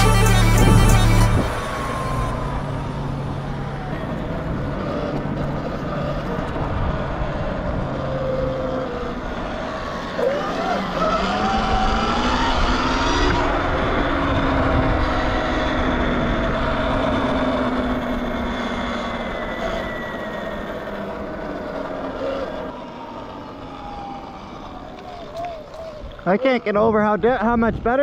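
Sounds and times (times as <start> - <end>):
electric motor whine: 0.0 - 26.8
wind rushing: 0.5 - 3.7.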